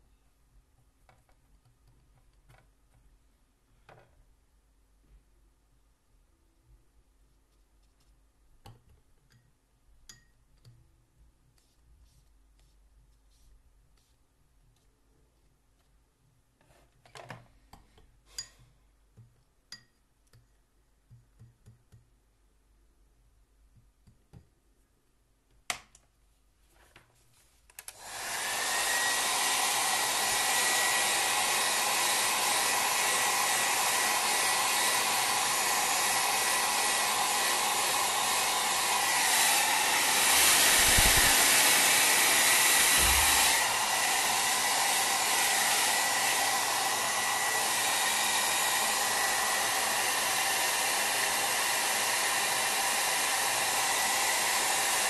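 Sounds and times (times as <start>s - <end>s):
hair dryer blowing: 27.9s - 55.0s.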